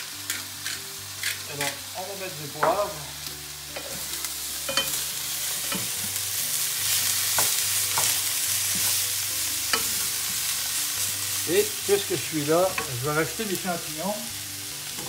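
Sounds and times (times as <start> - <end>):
food sizzling in a frying pan: 0.0 - 15.0
wooden utensils clicking on pan: 7.3 - 9.0, 12.6 - 13.6.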